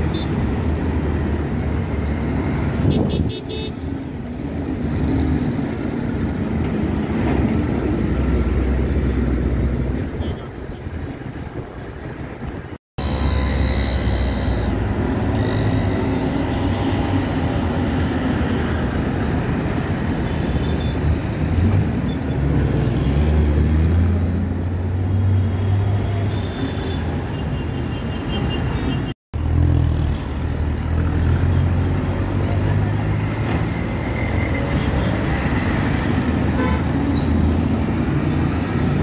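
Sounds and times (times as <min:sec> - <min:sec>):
traffic noise: 0:00.0 - 0:39.0
bus engine drone: 0:03.9 - 0:20.5.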